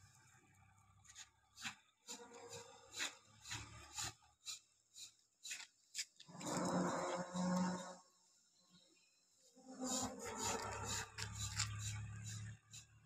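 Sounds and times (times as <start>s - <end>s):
hand tool rasping on concrete: 1.1s - 8.0s, 9.8s - 13.0s.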